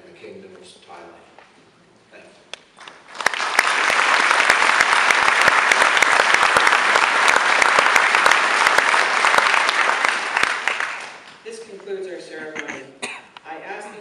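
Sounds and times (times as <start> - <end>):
audience applauding: 2.8 - 11.4.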